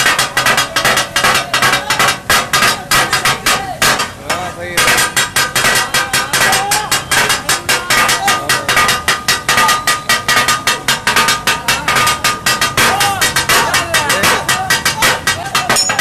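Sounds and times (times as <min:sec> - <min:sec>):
metal blades clanging on griddle: 0:00.0 - 0:16.0.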